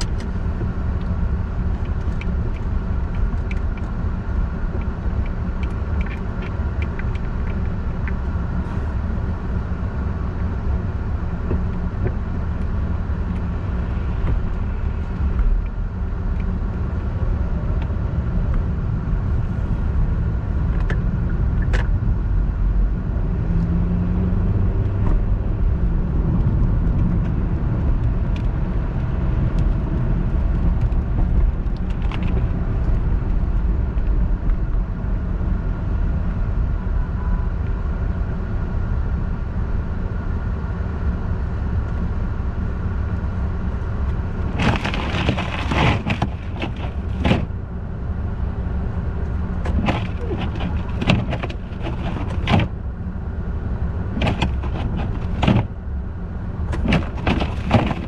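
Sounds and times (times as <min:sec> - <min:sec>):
car road and engine rumble: 0:00.0 - 0:58.0
slush splashing against car: 0:44.5 - 0:47.5, 0:49.6 - 0:52.7, 0:54.2 - 0:55.7, 0:56.7 - 0:58.0.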